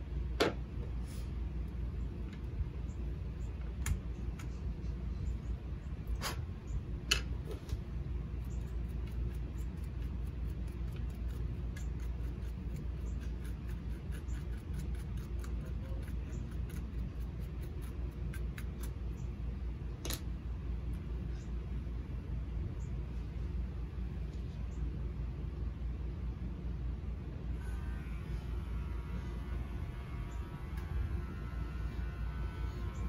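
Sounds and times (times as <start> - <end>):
steady low hum: 0.0 - 33.0
scissors snipping: 8.5 - 19.0.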